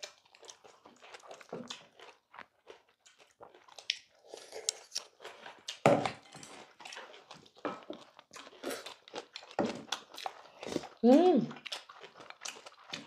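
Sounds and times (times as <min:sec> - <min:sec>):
chewing and slurping: 0:00.0 - 0:13.0.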